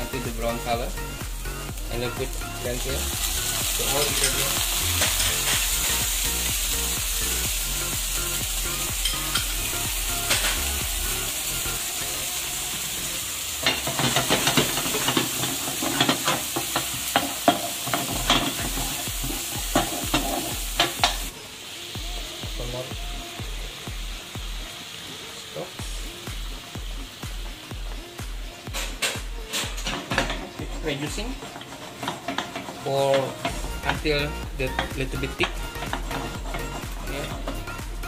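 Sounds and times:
food sizzling in oil: 0.0s - 38.0s
spatula knocking and scraping pan: 13.6s - 21.3s, 31.4s - 34.1s, 34.7s - 37.6s.

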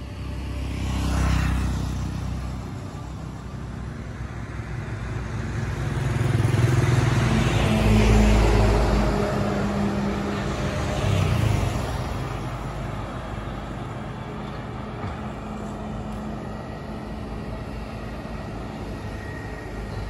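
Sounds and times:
motorcycle passing by: 0.2s - 2.8s, 5.2s - 13.0s
vehicle passing: 5.7s - 19.9s.

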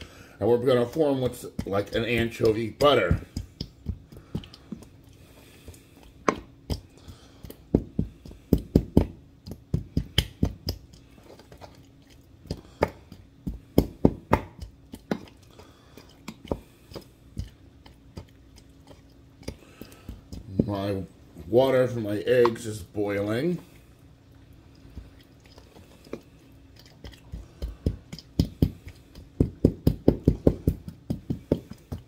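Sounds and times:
pestle knocking and scraping in mortar: 0.6s - 11.8s, 12.4s - 15.4s, 16.0s - 21.0s, 26.8s - 32.0s.

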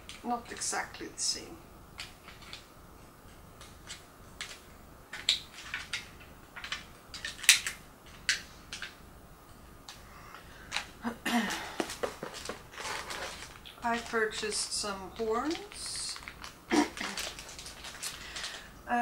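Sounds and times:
plastic packets clicking: 3.6s - 9.0s, 10.6s - 18.7s
plastic packet rustle: 10.6s - 18.7s.

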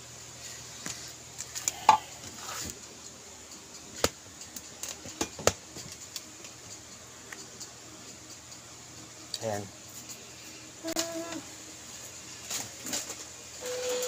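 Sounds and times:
sharp clicks and knocks: 3.0s - 8.6s.

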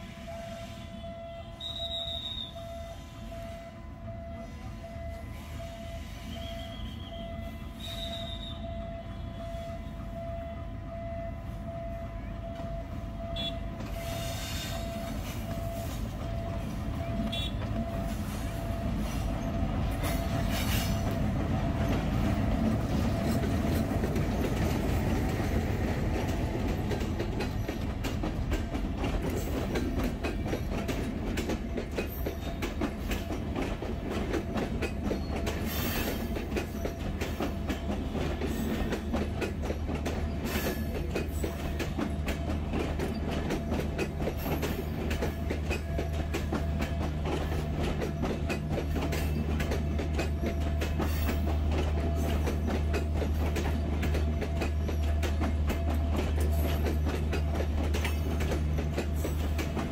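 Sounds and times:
diesel train rumbling past: 0.0s - 59.9s
wheels clicking over rail joints: 13.4s - 59.9s.

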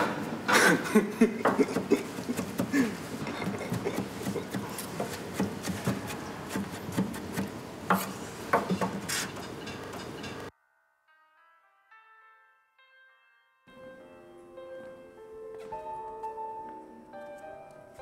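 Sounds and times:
knives chopping on cutting boards: 1.5s - 9.1s
utensils clinking: 7.9s - 10.5s.

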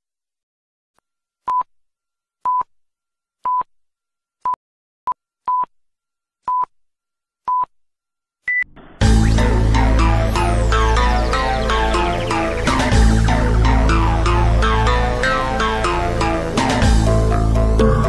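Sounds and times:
electronic countdown beeps: 8.5s - 16.8s
loud electronic music: 9.0s - 18.0s.

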